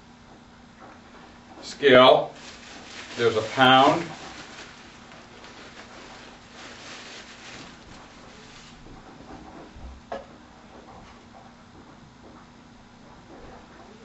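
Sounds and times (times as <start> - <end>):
plastic bag crinkling: 1.8 - 9.1.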